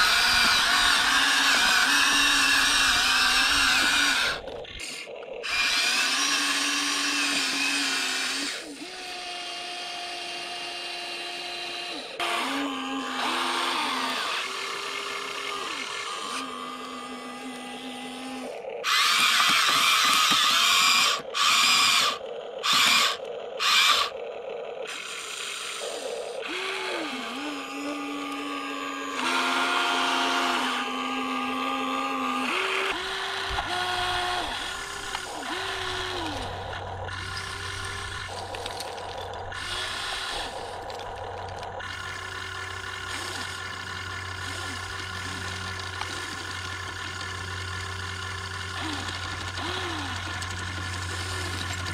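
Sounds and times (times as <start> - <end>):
small electric motors whining: 0.0 - 51.9.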